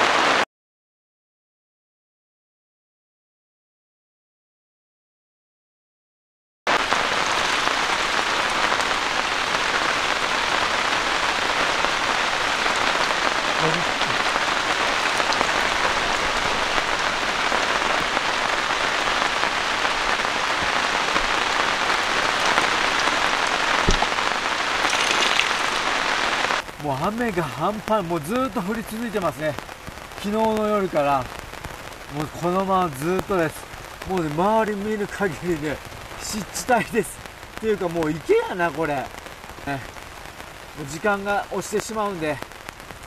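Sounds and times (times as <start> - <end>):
heavy rain pouring: 0.0 - 0.4, 6.7 - 43.0
sharp tap: 23.9 - 24.1.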